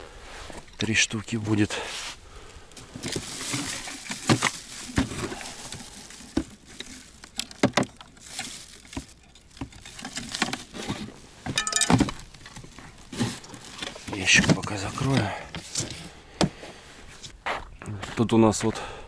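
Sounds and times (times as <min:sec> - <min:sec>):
clattering rattle: 0:03.0 - 0:14.7.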